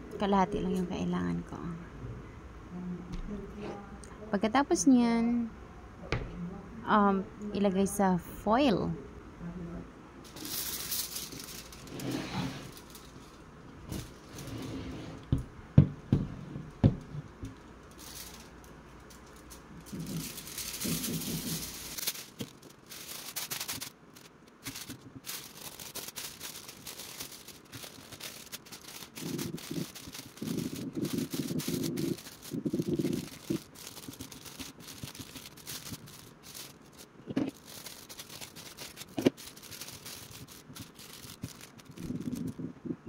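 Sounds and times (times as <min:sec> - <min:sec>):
aluminium foil crinkling: 0:10.2 - 0:15.3, 0:16.6 - 0:42.7.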